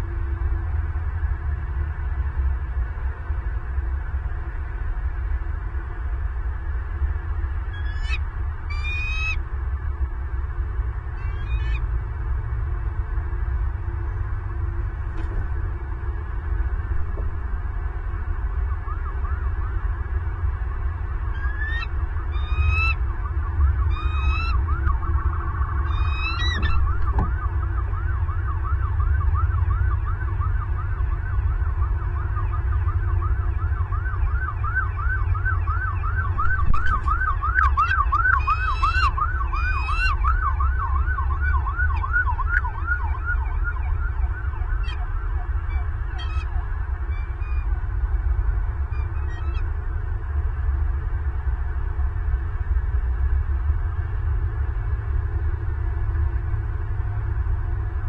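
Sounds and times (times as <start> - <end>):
eagle squealing calls: 7.7 - 9.4, 11.1 - 11.9, 21.3 - 23.0, 23.9 - 24.6, 25.9 - 27.0, 37.6 - 40.2, 44.8 - 45.0, 45.6 - 47.8, 48.9 - 49.7
rising and falling chirps: 7.8 - 9.4, 11.2 - 11.8, 21.4 - 23.0, 23.9 - 24.6, 25.8 - 27.0, 37.6 - 40.3
low rumble: 13.6 - 18.7.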